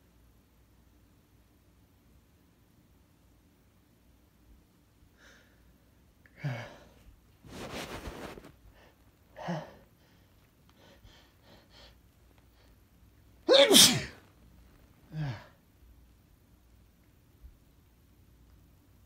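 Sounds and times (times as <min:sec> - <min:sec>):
man sneezing loudly: 0:13.5 - 0:14.2.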